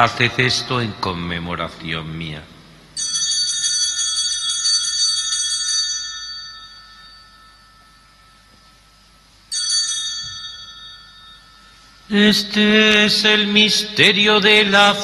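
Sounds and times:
altar bells ringing: 3.0s - 13.6s.

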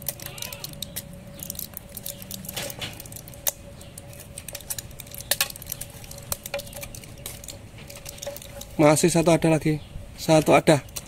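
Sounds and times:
sharp clicks of blister pack: 0.0s - 8.8s
blister pack crinkling: 0.0s - 9.3s.

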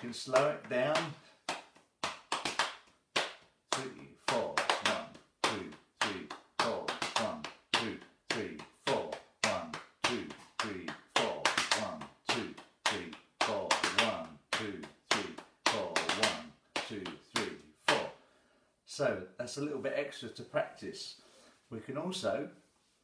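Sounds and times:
hands slapping on thighs: 0.0s - 18.1s.

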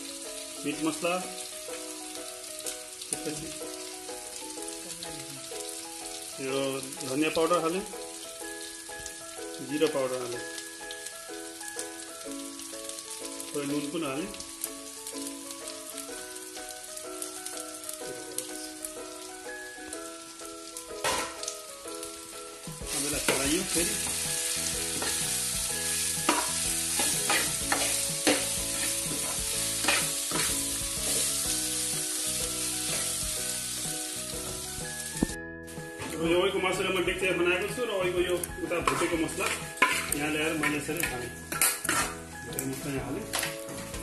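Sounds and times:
spices sizzling in oil: 0.0s - 44.0s
metal spoon scraping a pan: 21.0s - 21.4s, 22.9s - 24.3s, 24.9s - 25.4s, 26.2s - 31.4s, 38.8s - 42.3s.

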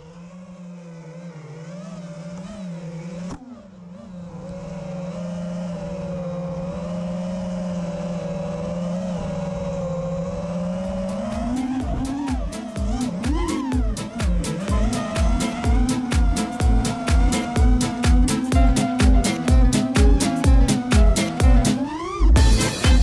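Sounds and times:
drone motors whining: 0.0s - 23.0s
music beat: 10.9s - 23.0s.

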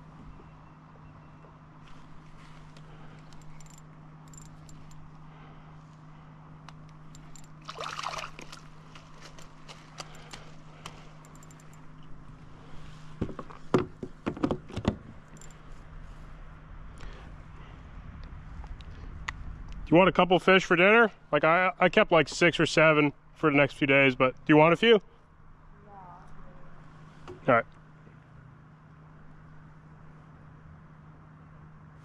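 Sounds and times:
low hum: 0.0s - 32.0s
fish splashing in water: 7.6s - 11.0s.

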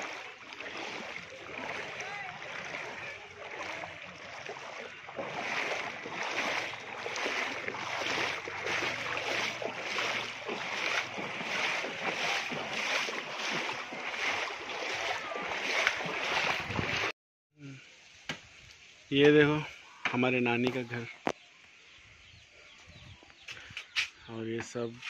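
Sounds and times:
footsteps wading through water: 0.0s - 17.1s.

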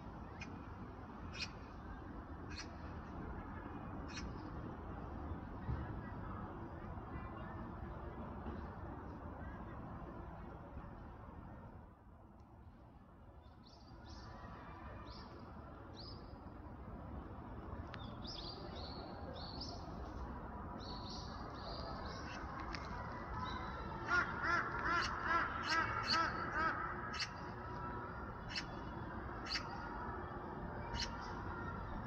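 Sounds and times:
magpie harsh chatter: 24.1s - 27.4s, 29.4s - 29.8s, 30.9s - 31.2s.

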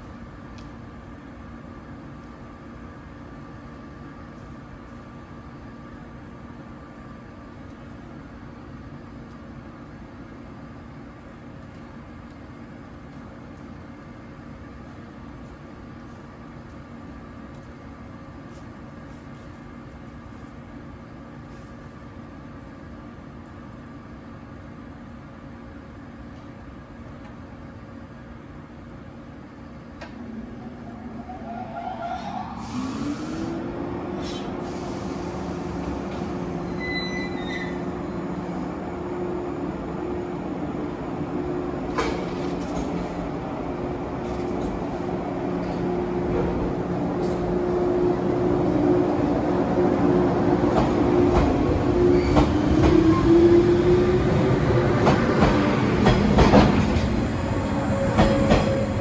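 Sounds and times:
electric train running: 45.5s - 59.0s.

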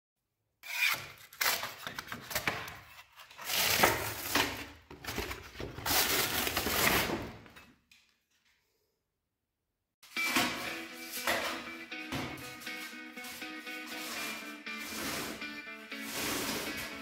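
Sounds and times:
wallpaper ripping off wall: 12.7s - 17.0s.

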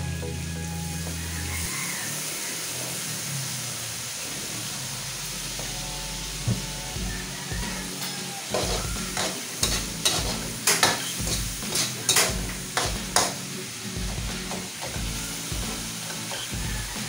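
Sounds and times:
food sizzling in oil: 0.0s - 17.0s
spatula scraping a pan: 7.8s - 13.4s, 14.4s - 17.0s.

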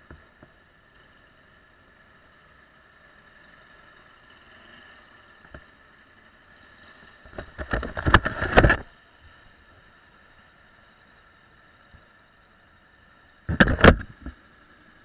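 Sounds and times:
idling traffic hum: 0.0s - 15.0s
rubbing and knocking on microphone: 7.3s - 8.9s, 13.5s - 14.4s.

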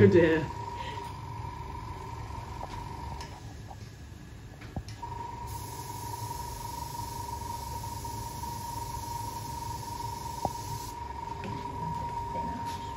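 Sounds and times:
airbrush compressor whining: 5.0s - 12.9s
air hissing from airbrush: 5.5s - 11.0s.

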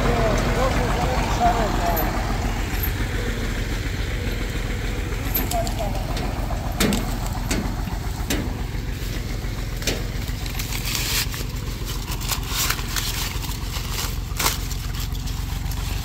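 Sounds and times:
tractor diesel engine drone: 0.0s - 16.0s
dry corn leaves rustling: 4.2s - 16.0s.

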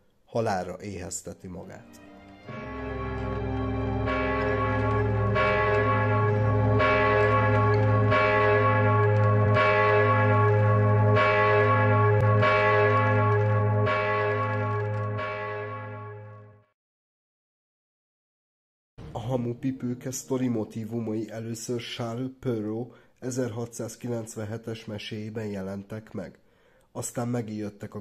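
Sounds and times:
large church bells tolling: 2.5s - 16.7s.

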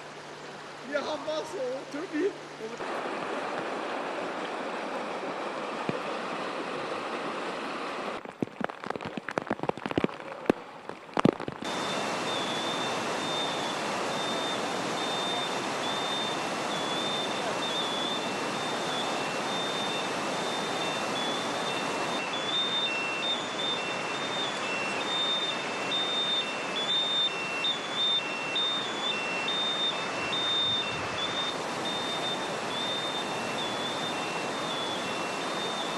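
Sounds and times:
rushing flood torrent: 0.0s - 35.9s
faint high electronic tone: 11.7s - 35.9s.

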